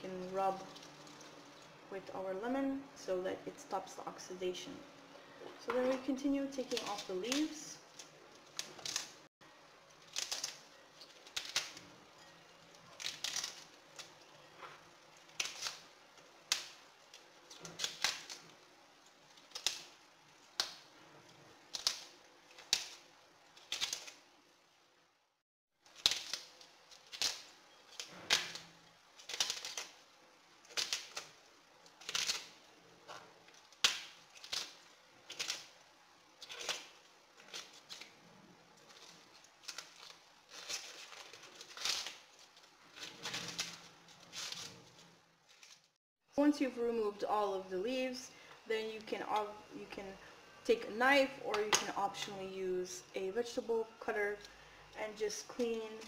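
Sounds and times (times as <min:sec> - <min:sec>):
artichoke leaves snapping off: 0:05.9 - 0:09.2, 0:10.0 - 0:11.9, 0:12.8 - 0:14.3, 0:15.2 - 0:18.6, 0:19.3 - 0:20.9, 0:21.7 - 0:24.2, 0:25.9 - 0:30.0, 0:30.6 - 0:35.8, 0:36.4 - 0:38.1, 0:38.8 - 0:44.8.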